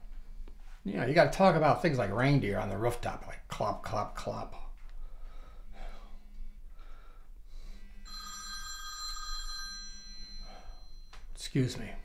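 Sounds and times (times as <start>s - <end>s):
faint low hum pulsing: 0.0s - 8.1s
telephone ringing: 8.0s - 11.4s.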